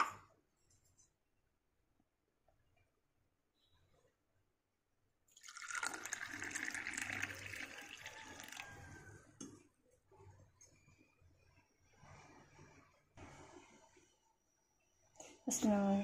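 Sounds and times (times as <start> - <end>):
water pouring into metal tumbler: 5.3 - 9.1.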